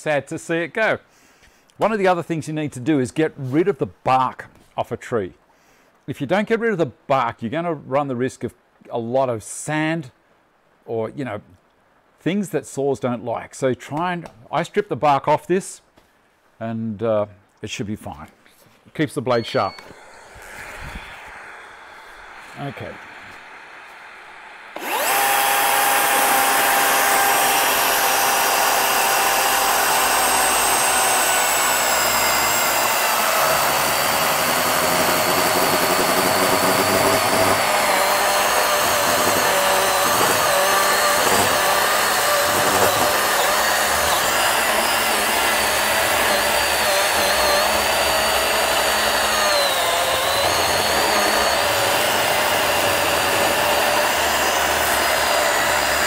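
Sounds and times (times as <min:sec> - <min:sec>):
electric chainsaw cutting log: 0:19.3 - 0:56.0.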